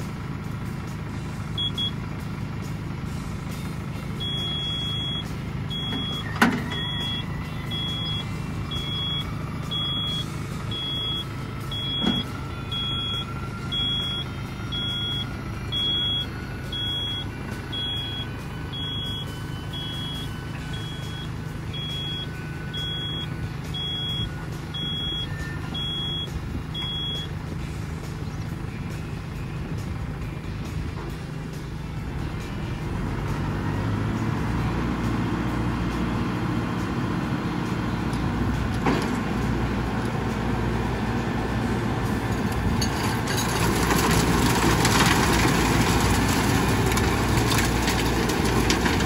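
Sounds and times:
tractor diesel engine running: 0.0s - 49.0s
electronic warning beeper: 4.2s - 27.3s.

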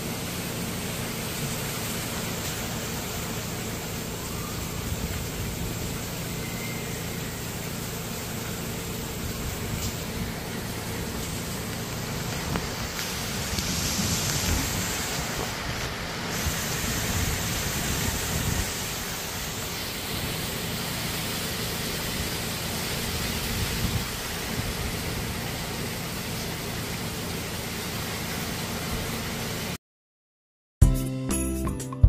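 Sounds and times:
heavy rain pouring: 0.0s - 29.8s
wind thrashing trees: 2.6s - 26.4s.

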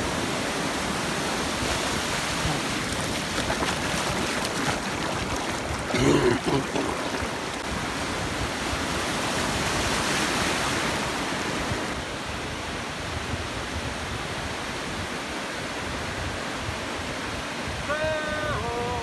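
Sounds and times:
ocean waves breaking: 0.0s - 12.0s.

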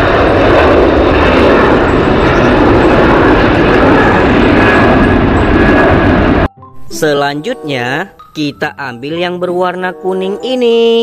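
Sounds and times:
jet engines roaring: 0.0s - 6.5s.

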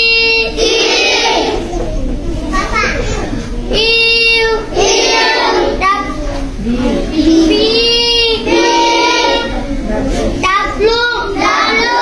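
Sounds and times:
boys chanting in unison: 3.8s - 9.7s, 10.6s - 12.0s.

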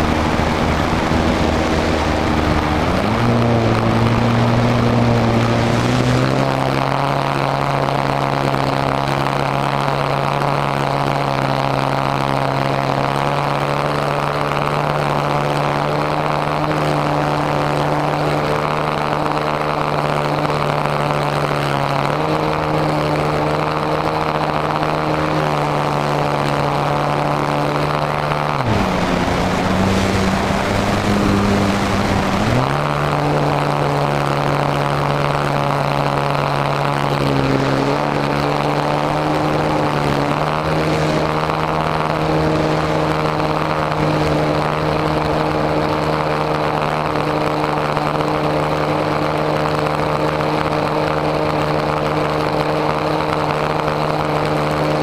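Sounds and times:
wind rush: 0.0s - 8.0s, 22.9s - 52.8s
model airplane motor and propeller: 0.0s - 55.0s.

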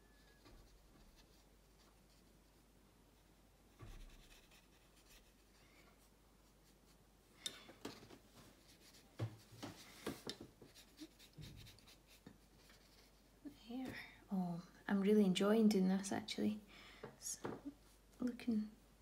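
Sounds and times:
paintbrush scratching on paper: 0.0s - 2.6s, 3.8s - 7.0s, 8.6s - 9.1s, 10.5s - 13.3s.

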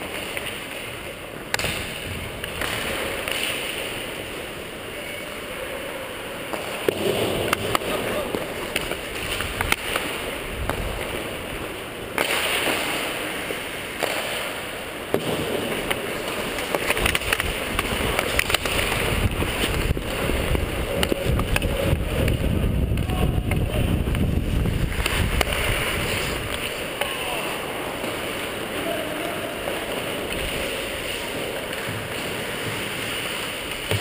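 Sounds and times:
skates scraping on ice: 0.0s - 34.0s
sticks and puck clacking: 0.0s - 34.0s
wind rumbling on microphone: 17.0s - 26.6s.

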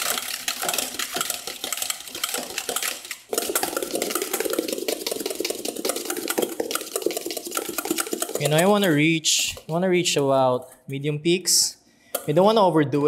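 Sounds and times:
whisk beating in metal bowl: 0.0s - 9.8s.

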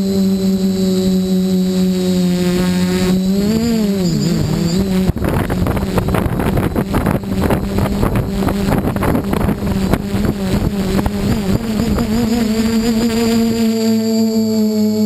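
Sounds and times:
drone propellers humming: 0.0s - 15.0s
wind buffeting microphone: 3.3s - 13.6s.

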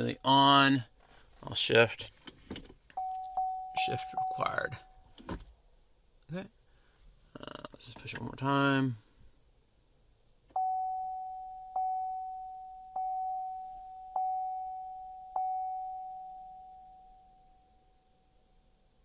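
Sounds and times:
car warning chime: 3.0s - 5.0s, 10.5s - 18.2s.

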